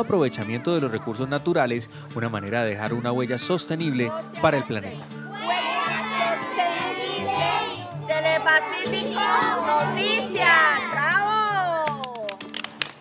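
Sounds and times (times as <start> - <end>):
background music: 0.0 - 13.0
children singing together: 4.4 - 11.1.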